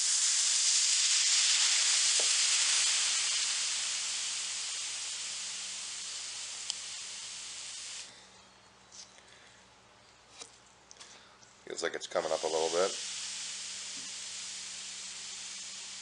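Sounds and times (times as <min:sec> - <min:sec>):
steam hissing from iron: 0:00.0 - 0:08.1, 0:12.1 - 0:16.0.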